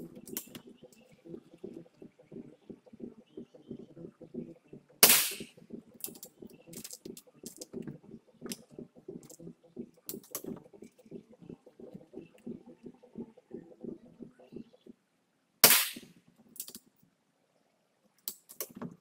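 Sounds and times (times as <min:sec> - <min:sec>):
air rifle shot: 0:05.0 - 0:05.5, 0:15.6 - 0:16.1.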